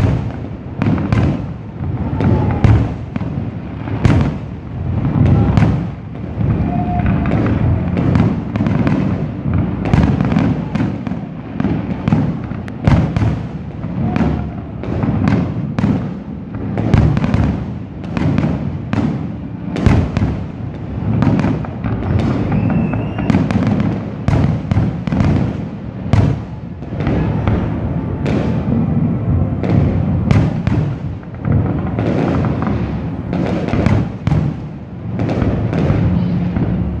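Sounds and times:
fireworks bangs: 0.0 - 37.0
low rumble: 25.0 - 33.9.

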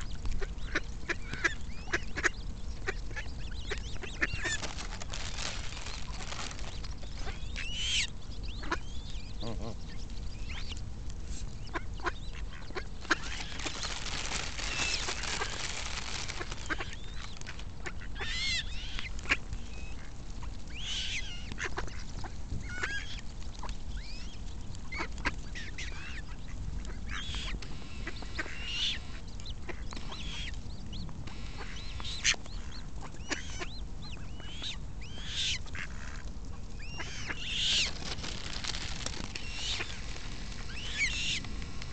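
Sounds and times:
ducks quacking: 0.4 - 9.9, 11.6 - 20.2, 20.8 - 23.2, 24.9 - 30.5, 31.5 - 38.4
coots calling: 0.4 - 10.7, 11.6 - 23.2, 31.5 - 41.6.

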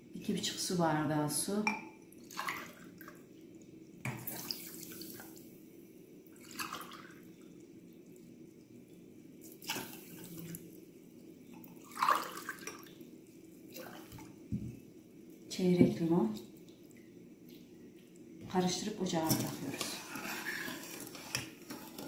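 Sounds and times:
water pouring into a metal pot: 6.3 - 13.0.

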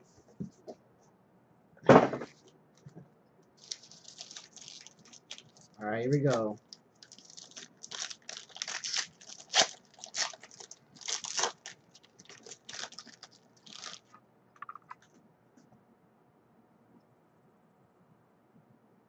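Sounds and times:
foil wrapper tearing and crinkling: 3.6 - 14.1.

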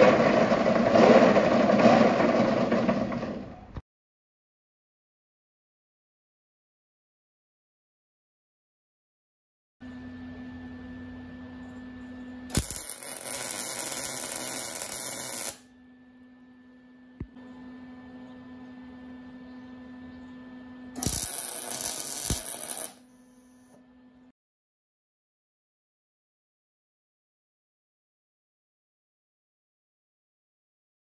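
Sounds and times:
steady electrical hum: 9.8 - 24.3
welder sharp click: 12.5 - 15.6, 21.0 - 23.0
welding arc noise: 12.5 - 15.7, 20.9 - 23.0.

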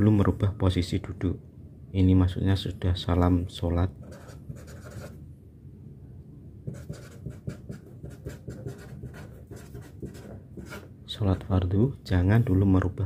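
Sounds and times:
marker writing on paper: 4.0 - 5.2, 6.6 - 10.9.

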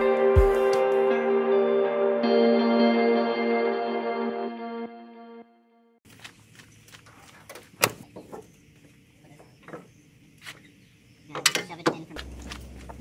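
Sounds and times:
ambient music chord: 0.0 - 6.0.

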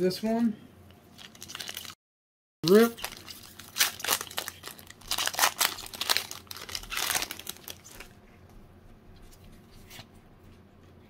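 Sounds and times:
foil wrapper crinkling and tearing: 1.2 - 2.0, 2.6 - 8.2.

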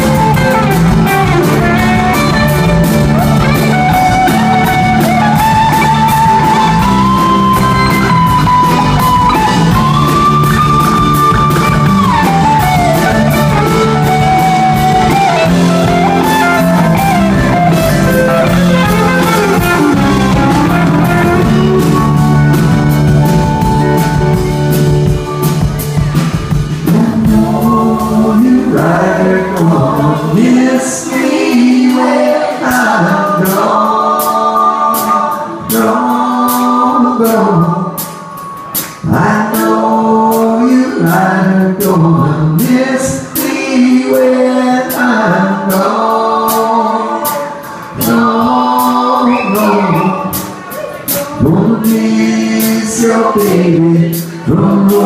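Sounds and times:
electric guitar lead: 0.0 - 31.0
bass guitar: 0.0 - 55.0
drums: 0.0 - 55.0
voices singing in harmony: 26.8 - 55.0.

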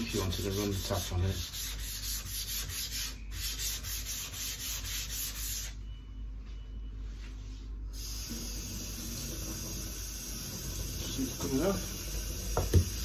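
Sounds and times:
stone rasping on sandpaper: 0.0 - 5.8
steady hiss: 8.0 - 13.0.

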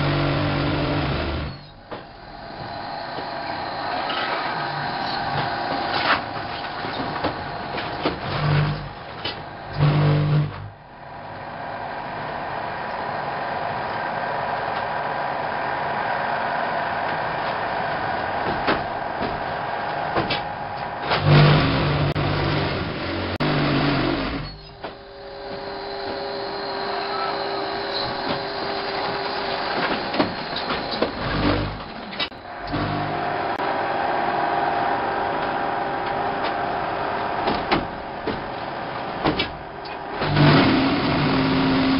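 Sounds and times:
block making machine running: 17.5 - 41.9
loud low machine drone: 17.6 - 38.3.

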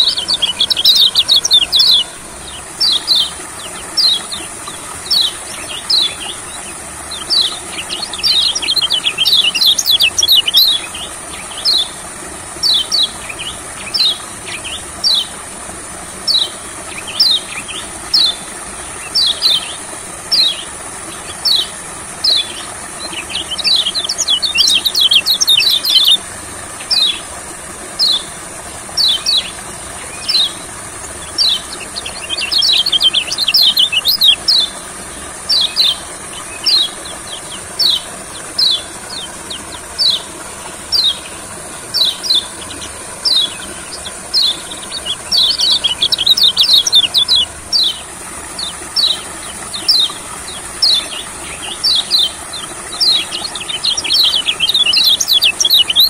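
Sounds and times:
bird chirping: 0.0 - 11.9, 21.3 - 26.2, 29.0 - 34.8, 35.5 - 56.0.

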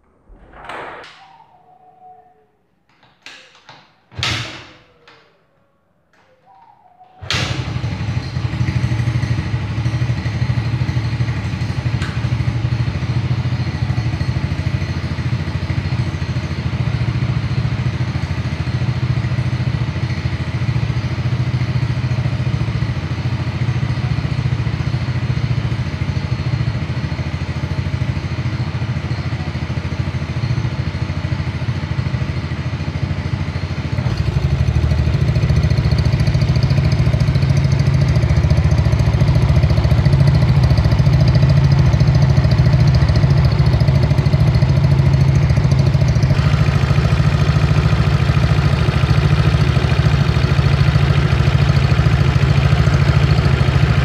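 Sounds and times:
scooter engine idling: 7.2 - 54.0.

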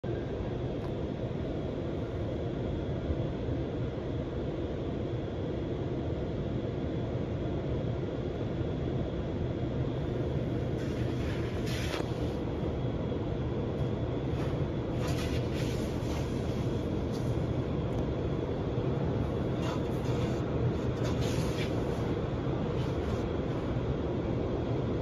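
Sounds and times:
car wash low rumble: 0.0 - 25.0
water and cloth strips swishing: 14.4 - 17.5, 19.5 - 22.1.

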